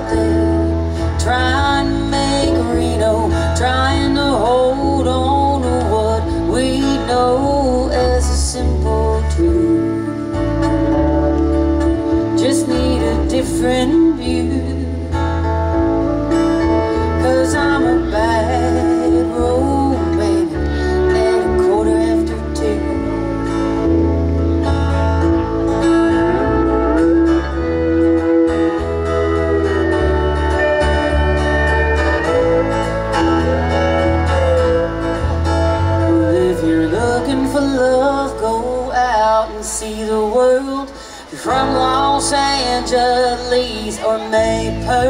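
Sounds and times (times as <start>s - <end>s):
country band playing live: 0.0s - 45.0s
lead instrument sliding notes: 9.5s - 14.0s, 20.0s - 37.4s.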